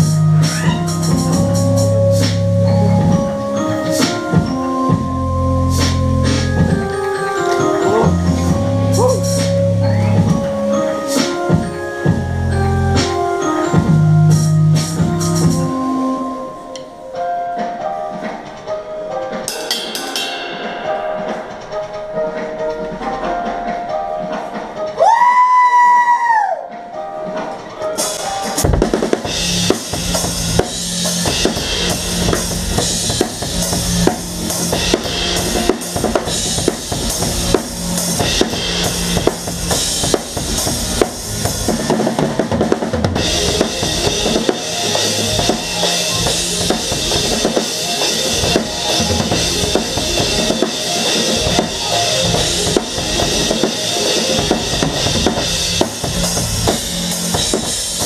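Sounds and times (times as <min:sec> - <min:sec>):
drum kit played hard: 0:00.0 - 0:16.0, 0:19.3 - 0:23.7, 0:27.9 - 0:58.0
live band playing: 0:00.0 - 0:25.6, 0:27.2 - 0:58.0
cymbals crashing: 0:19.5 - 0:22.3, 0:43.2 - 0:58.0.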